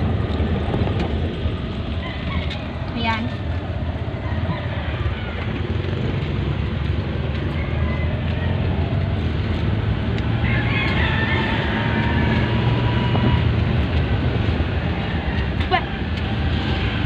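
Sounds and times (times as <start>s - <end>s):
road noise: 0.0s - 17.0s
van engine rumbling: 0.0s - 17.0s.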